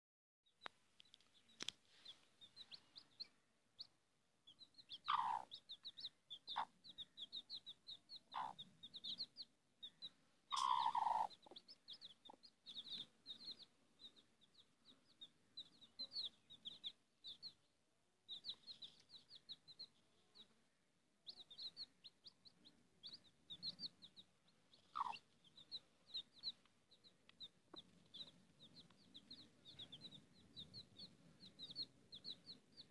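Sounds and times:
chicks peeping: 0:01.1 - 0:17.7, 0:18.3 - 0:32.9
hen clucking: 0:04.8 - 0:14.1, 0:23.0 - 0:26.6.

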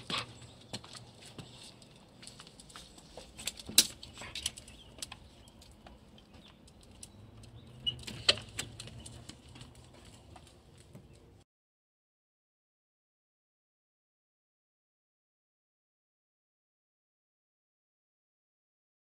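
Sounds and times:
dog claws clicking on concrete: 0:00.0 - 0:11.3.

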